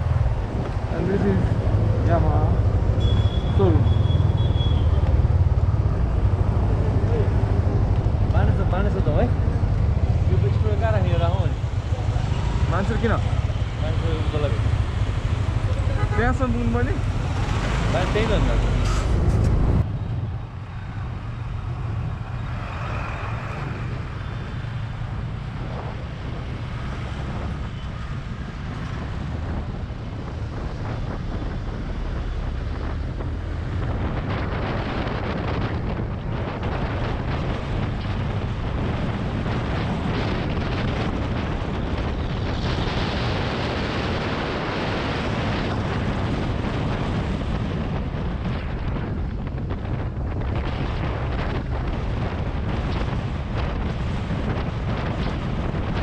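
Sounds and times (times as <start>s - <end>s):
wind buffeting microphone: 0.0s - 56.0s.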